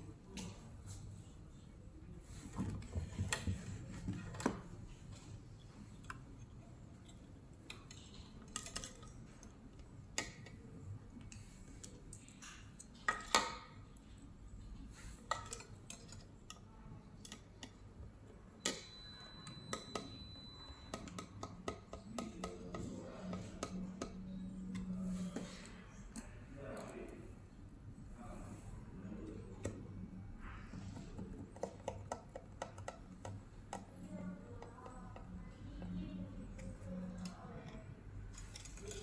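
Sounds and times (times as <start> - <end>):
plastic parts clicking and tapping: 6.0 - 27.0, 30.7 - 39.0.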